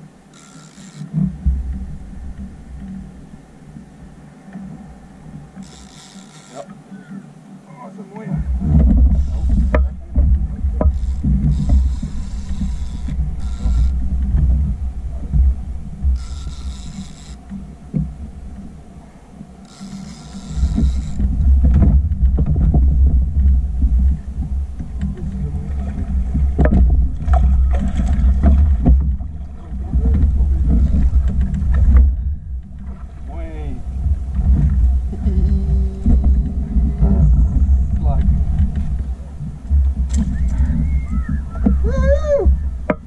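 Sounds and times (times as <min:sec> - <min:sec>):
water rumbling around boat: 0:00.0 - 0:43.0
water splashes: 0:07.7 - 0:43.0
wind buffeting microphone: 0:08.3 - 0:19.2, 0:20.3 - 0:43.0
knocks on boat hull: 0:42.5 - 0:43.0.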